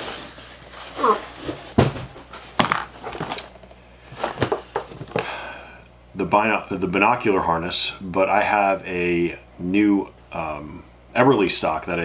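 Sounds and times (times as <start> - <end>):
cardboard scraping: 0.0 - 3.5.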